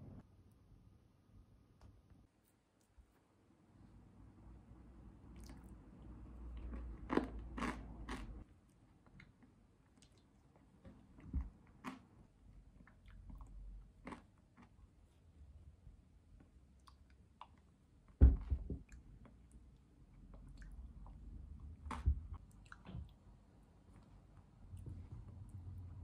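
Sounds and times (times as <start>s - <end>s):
quiet chewing: 5.4s - 15.2s, 16.4s - 18.2s, 18.8s - 25.6s.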